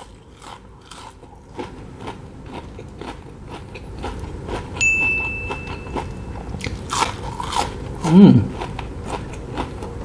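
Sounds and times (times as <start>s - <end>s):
chewing onion ring crunches: 0.0s - 4.8s, 5.8s - 10.0s
electronic ding: 4.8s - 6.5s.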